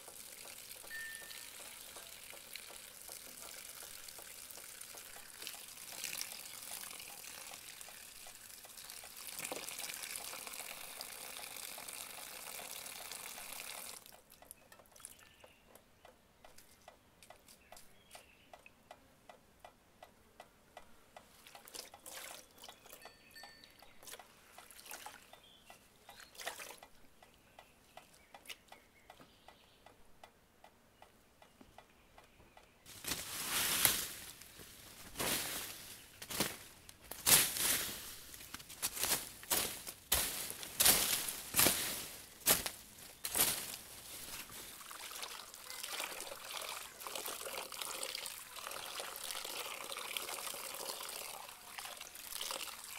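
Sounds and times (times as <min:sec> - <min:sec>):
faint evenly spaced ticks: 0:00.0 - 0:09.3, 0:10.2 - 0:32.8
water running from tap: 0:00.0 - 0:14.0, 0:44.8 - 0:52.9
rustling of leaves and branches: 0:00.0 - 0:15.6, 0:32.8 - 0:47.2.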